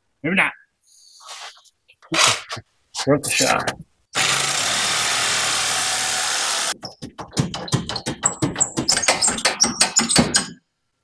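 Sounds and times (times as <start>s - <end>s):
cordless power tool running: 4.2s - 6.8s.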